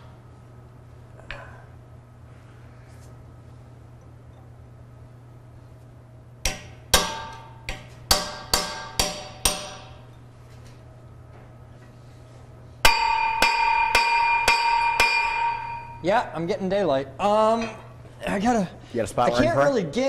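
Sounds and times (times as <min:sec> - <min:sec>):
hammer striking steel chisel: 0:06.4 - 0:10.0, 0:12.8 - 0:16.0
metal ringing: 0:12.8 - 0:16.1.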